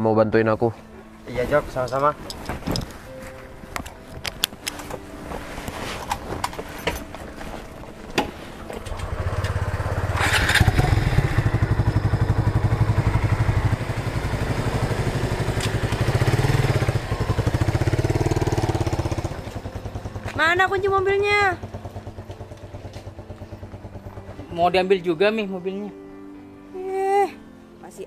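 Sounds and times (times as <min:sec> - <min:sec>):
motorcycle engine running: 0:06.0 - 0:25.6.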